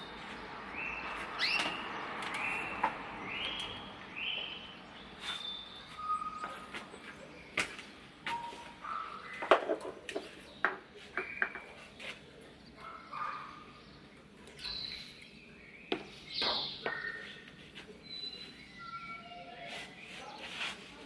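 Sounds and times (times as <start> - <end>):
birds chirping: 0.0 - 21.0
plant pots knocking on stone: 9.4 - 11.8, 15.9 - 17.1.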